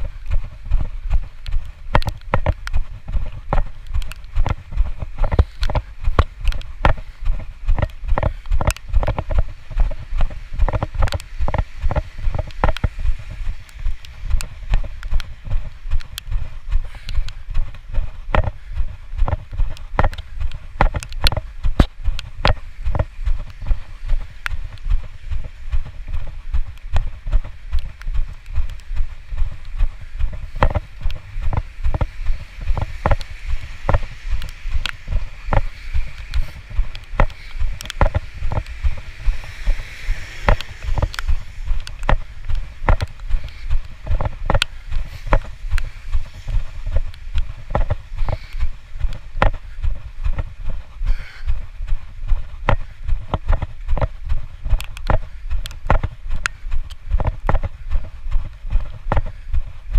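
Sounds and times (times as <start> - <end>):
camera thumping with footsteps: 0.0 - 59.9
car tyres hissing on wet road: 38.2 - 41.7.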